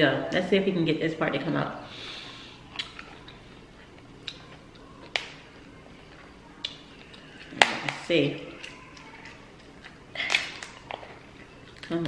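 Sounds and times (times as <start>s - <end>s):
shellfish shell cracking: 4.2s - 5.4s, 6.6s - 12.0s.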